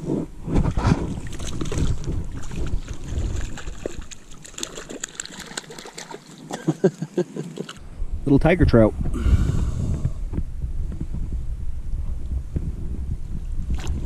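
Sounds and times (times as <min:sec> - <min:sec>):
wind rumble on microphone: 0:00.0 - 0:04.7, 0:07.8 - 0:14.0
fish splashing and thrashing in water: 0:00.4 - 0:07.8.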